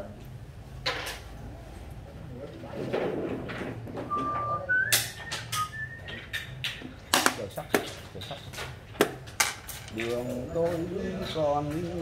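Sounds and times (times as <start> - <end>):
person whistling: 4.1 - 6.3.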